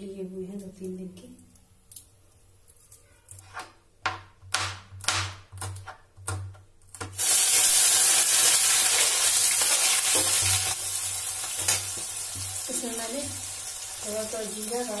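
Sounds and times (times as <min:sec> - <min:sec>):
food sizzling in hot oil: 0:07.2 - 0:15.0.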